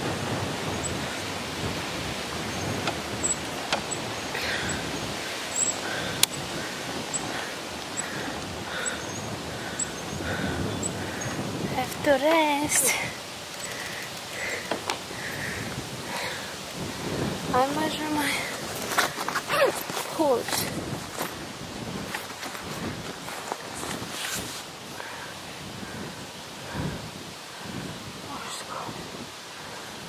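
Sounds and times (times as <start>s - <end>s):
outdoor background noise: 0.0s - 30.0s
wind rushing over microphone: 0.0s - 30.0s
person breathing hard: 4.3s - 11.7s, 12.8s - 17.3s, 24.9s - 28.0s
faint clicks: 13.5s - 15.0s.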